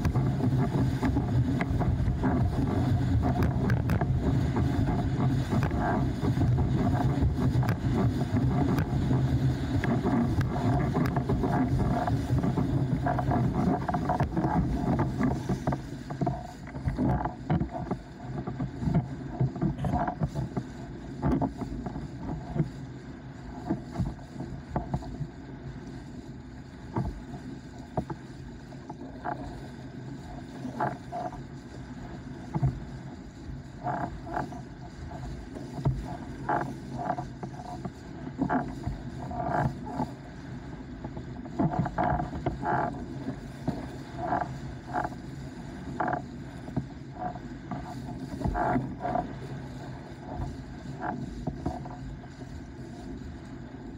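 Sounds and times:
rushing water: 0.0 - 53.9
wind: 0.0 - 53.9.

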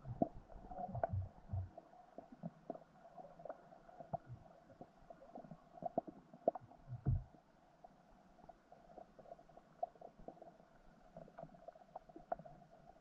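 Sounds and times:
muffled underwater thumps: 0.0 - 1.8, 6.8 - 7.4
faint underwater clicks: 0.0 - 13.0.

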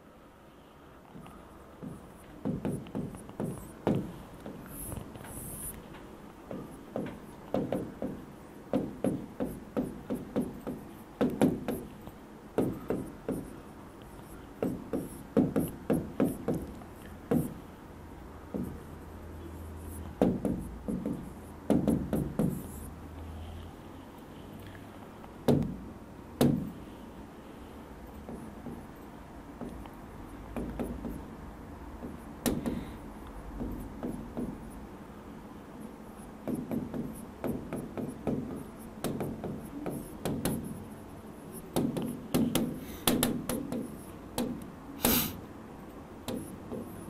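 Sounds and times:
pen tapping on whiteboard screen: 1.2 - 13.6, 14.6 - 17.6, 18.5 - 18.9, 20.1 - 22.8, 25.5 - 25.8, 26.4 - 26.7, 28.2 - 29.0, 29.6 - 31.3, 32.0 - 32.9, 33.5 - 34.8, 36.4 - 40.8, 41.7 - 45.2, 46.2 - 47.0.

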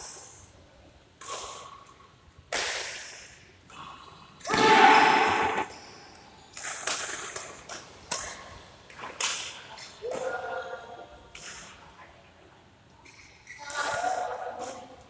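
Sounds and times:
rackets hitting shuttlecock: 4.4 - 5.9.

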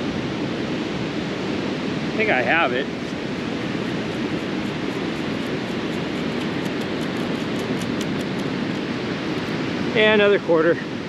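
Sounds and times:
wind noise: 0.0 - 10.1
ocean surf: 0.0 - 11.0
sand shaken through metal scoop: 3.2 - 8.9.

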